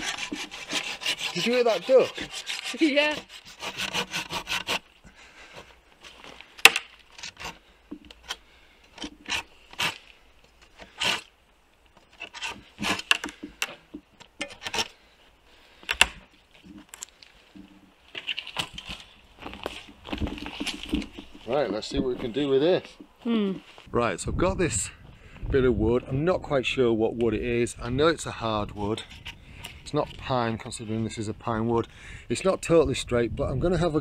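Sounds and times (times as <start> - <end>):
branch knocking and scraping bark: 6.0 - 8.4.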